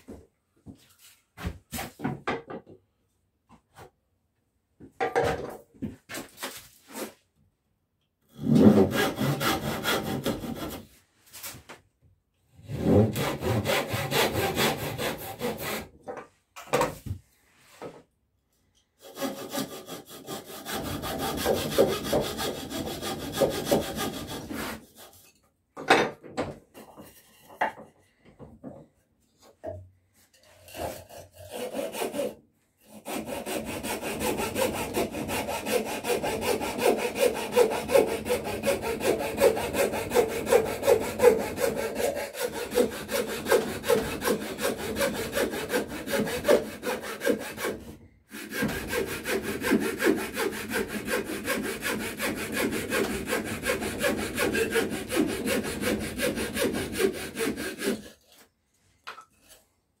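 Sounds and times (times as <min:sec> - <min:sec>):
coping saw cutting wood: 0:08.4 - 0:10.9, 0:12.7 - 0:15.9, 0:19.0 - 0:25.2, 0:30.6 - 0:58.5.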